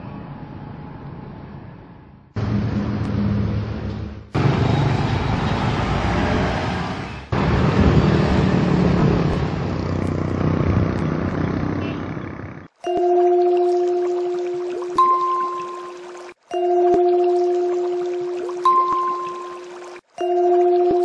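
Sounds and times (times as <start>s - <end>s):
motorbike and car engines passing: 2.4s - 12.8s.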